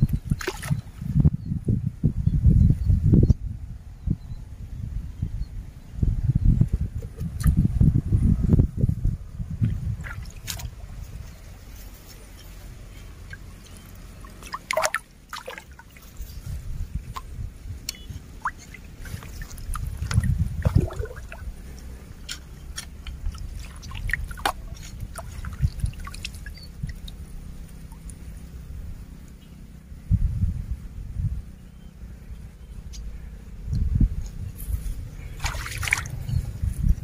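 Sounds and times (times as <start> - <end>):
net splashing through water: 0.3 - 0.8, 9.8 - 11.0, 13.2 - 16.2, 17.9 - 21.6, 23.0 - 28.2, 35.3 - 36.3
water dripping and trickling: 13.2 - 16.1, 17.9 - 28.3, 35.4 - 36.4.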